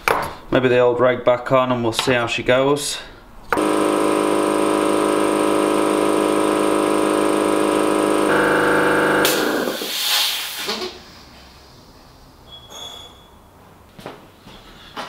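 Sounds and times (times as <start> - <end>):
air compressor running: 3.5 - 10.8
hiss of released air: 9.8 - 10.8.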